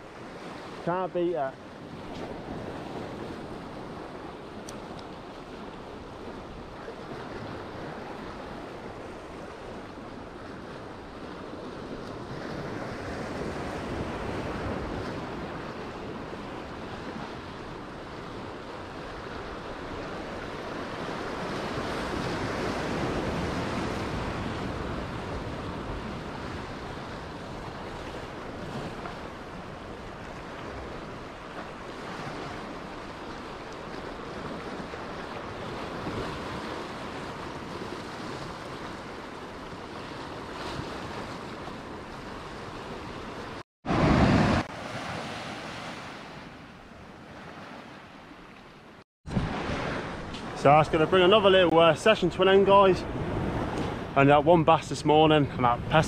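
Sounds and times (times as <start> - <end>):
sea waves breaking over rocks: 0.0 - 56.0
wind buffeting microphone: 49.3 - 51.2, 52.2 - 54.2.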